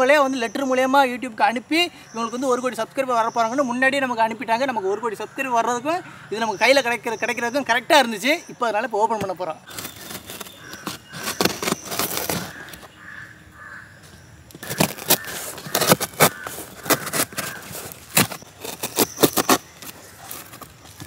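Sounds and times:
knife slicing cardboard and tape: 9.7s - 12.8s, 14.6s - 21.0s.

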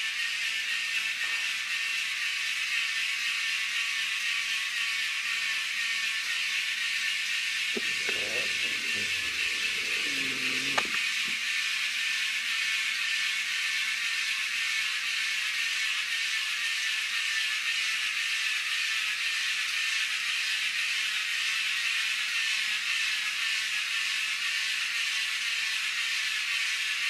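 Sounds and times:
small electric motor whirring: 7.8s - 11.4s.

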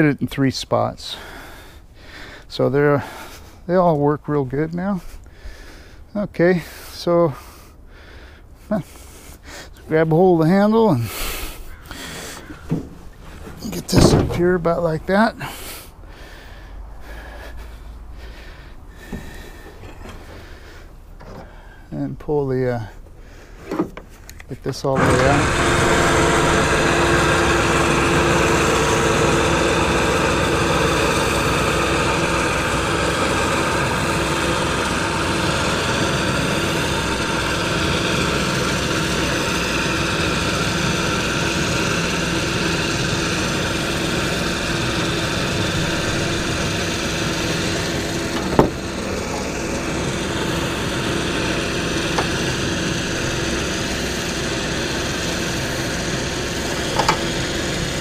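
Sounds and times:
electric winch motor whining: 24.9s - 58.0s.

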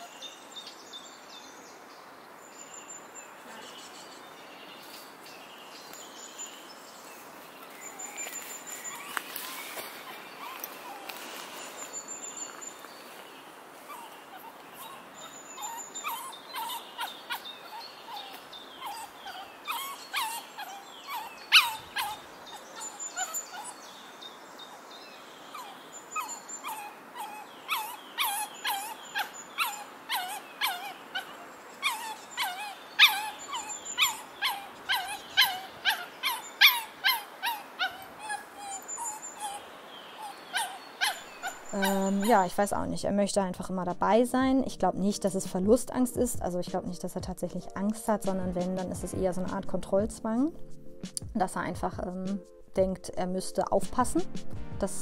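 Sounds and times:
dog whining: 13.9s - 23.8s, 25.5s - 42.4s
dog yelping: 13.9s - 23.8s, 25.5s - 42.4s.

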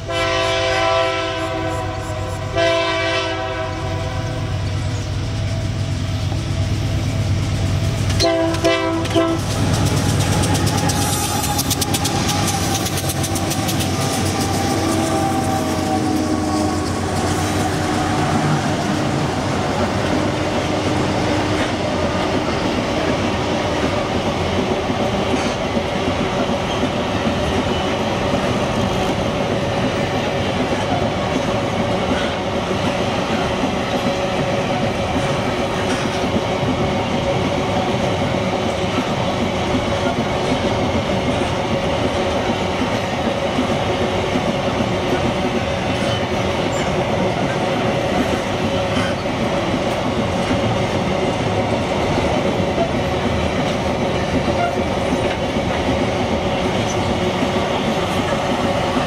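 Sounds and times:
diesel locomotive horn blast: 0.0s - 4.8s, 8.1s - 9.6s, 14.2s - 22.1s
locomotive engines passing: 3.7s - 59.0s
train wheels clacking over rail joints: 4.7s - 59.0s.

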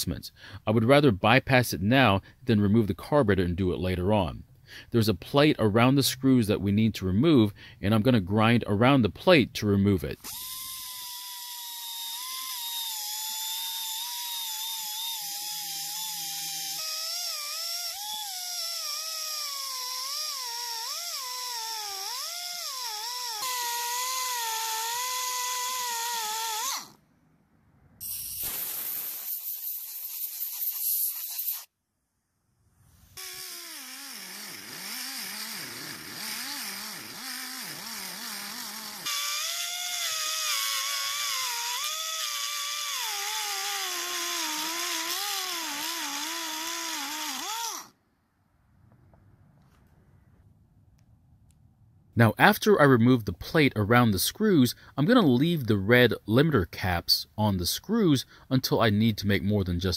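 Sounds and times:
rotary grinder whining on metal: 10.2s - 27.0s, 33.2s - 48.0s.

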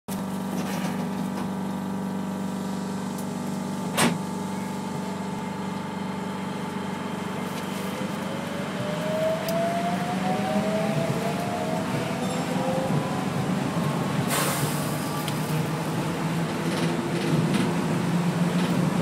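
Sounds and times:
rising motor whine: 8.0s - 16.0s.

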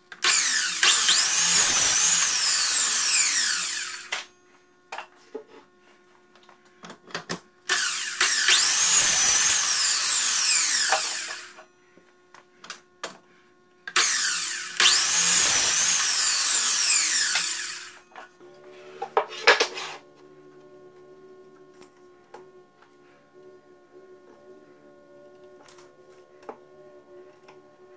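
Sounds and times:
miter saw cutting wood: 0.2s - 4.2s, 7.7s - 11.6s, 14.0s - 18.1s.

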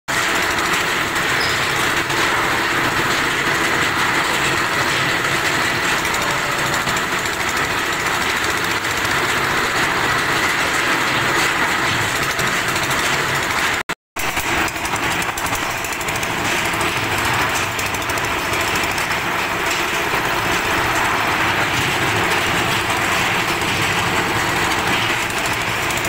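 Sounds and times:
concrete mixer engine running: 0.1s - 26.0s
mixer machinery clattering: 0.1s - 26.0s.

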